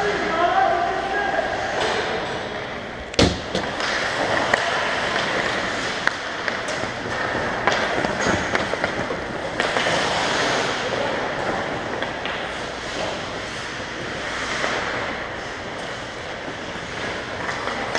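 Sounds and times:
hockey sticks clacking: 1.7 - 17.9
skates scraping ice: 3.6 - 17.9.

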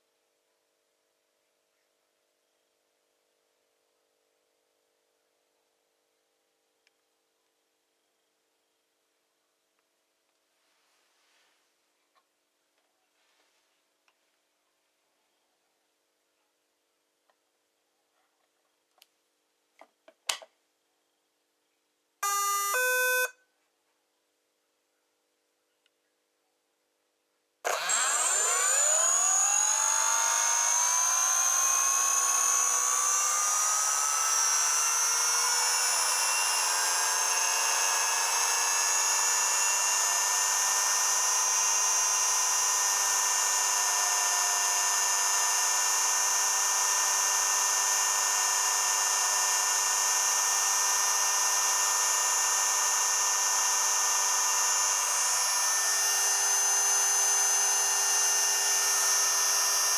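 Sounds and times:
motor whine: 22.2 - 23.3, 27.7 - 59.9.

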